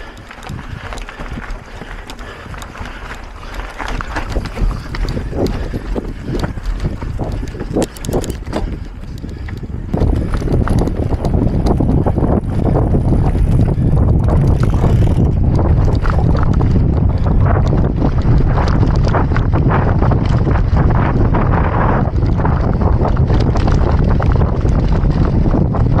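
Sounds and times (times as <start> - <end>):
bike rattling over rough trail: 0.0 - 26.0
wind buffeting microphone: 0.0 - 26.0.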